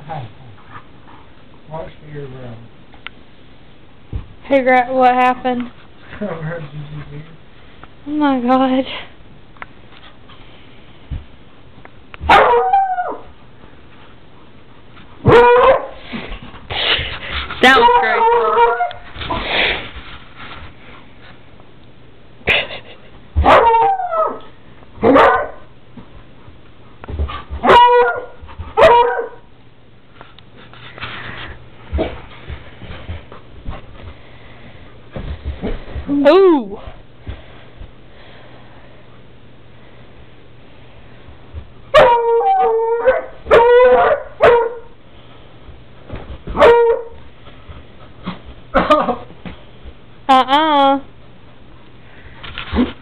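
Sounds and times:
dog barking: 12.3s - 12.7s, 15.3s - 16.0s, 23.4s - 24.4s, 25.0s - 25.7s, 27.6s - 29.4s, 41.9s - 42.3s, 43.2s - 44.9s, 46.6s - 47.2s.

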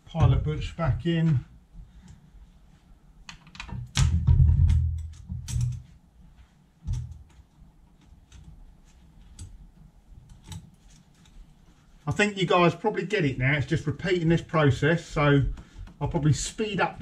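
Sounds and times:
metal tool clicks and knocks: 3.3s - 5.9s.

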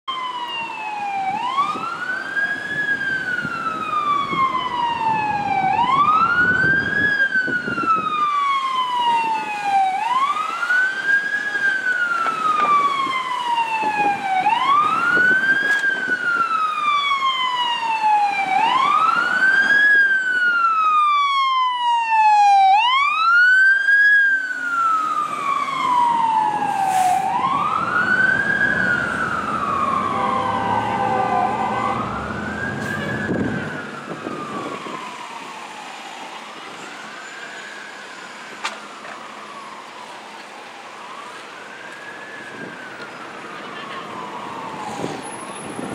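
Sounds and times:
fire engine siren wailing: 0.1s - 45.9s
low traffic rumble: 0.1s - 45.9s.

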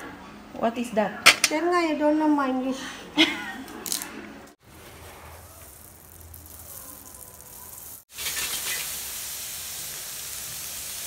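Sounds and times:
leaves sizzling in hot pan: 4.6s - 11.0s.

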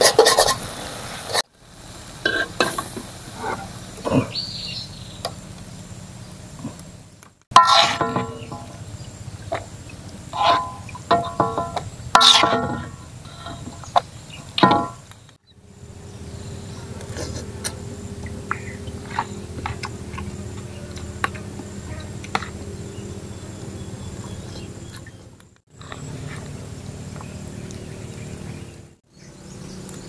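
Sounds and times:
fork scraping metal wok: 0.0s - 0.6s, 2.2s - 3.7s, 7.5s - 8.8s, 10.3s - 15.0s
steady outdoor hum: 0.0s - 30.0s.

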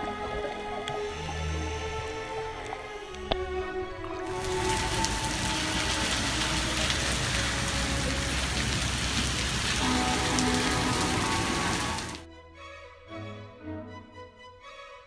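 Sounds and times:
soft music: 0.0s - 15.0s
rain on a wet street: 4.3s - 12.2s.

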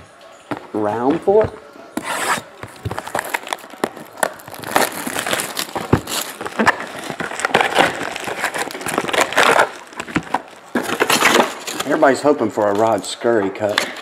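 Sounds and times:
foil card packs crinkling: 2.0s - 13.0s.

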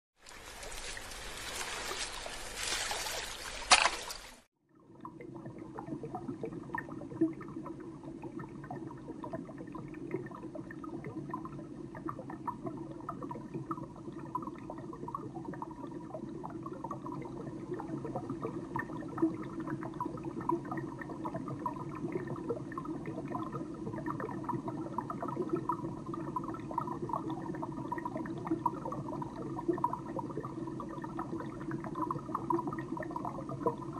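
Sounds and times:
sharp water splash: 0.2s - 4.5s
muffled underwater bubbling: 4.7s - 33.9s.

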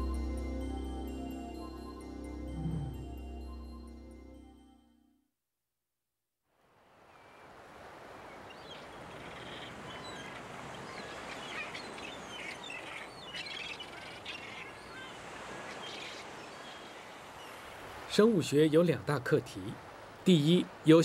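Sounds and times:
seabirds chirping: 8.3s - 19.3s.

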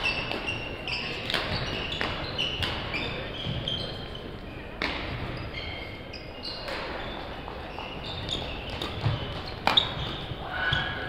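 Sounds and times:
rackets hitting shuttlecock: 0.0s - 4.0s, 4.7s - 5.4s, 6.6s - 7.6s, 8.3s - 11.0s
court shoes squeaking: 0.0s - 11.0s
faint voices: 10.2s - 11.0s.

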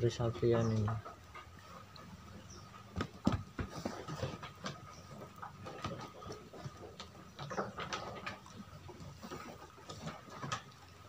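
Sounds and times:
lamb hooves on wooden floor: 2.6s - 8.4s.

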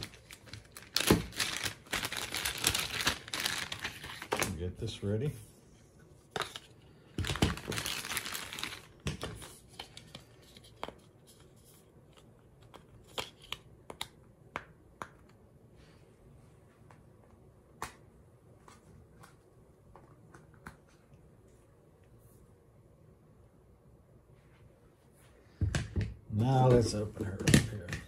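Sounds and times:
plastic packaging crinkling: 0.0s - 4.7s, 6.4s - 10.1s.

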